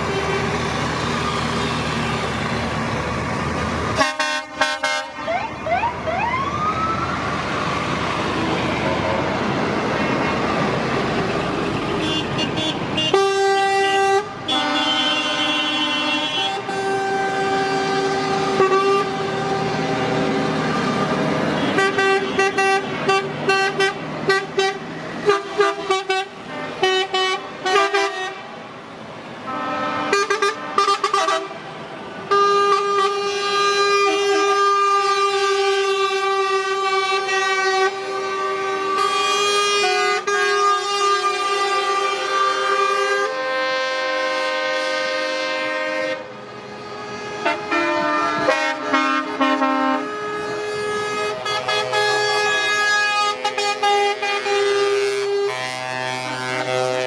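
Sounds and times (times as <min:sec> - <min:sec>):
truck horns blasting and tooting: 0:00.0 - 0:00.7, 0:03.9 - 0:05.9, 0:11.2 - 0:28.6, 0:29.4 - 0:57.0
trucks driving past: 0:00.0 - 0:57.0.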